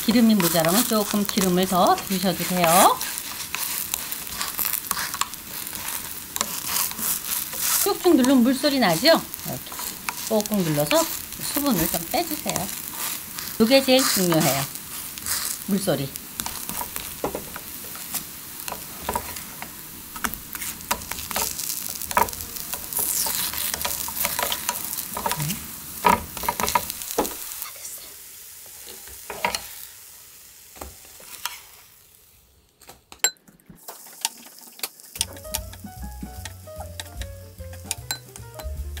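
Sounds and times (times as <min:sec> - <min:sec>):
wooden spatula tapping and scraping: 0:00.0 - 0:27.5, 0:29.1 - 0:29.7, 0:35.2 - 0:39.0
pancakes sizzling in oil: 0:00.0 - 0:32.8, 0:33.8 - 0:39.0
background music: 0:35.2 - 0:39.0.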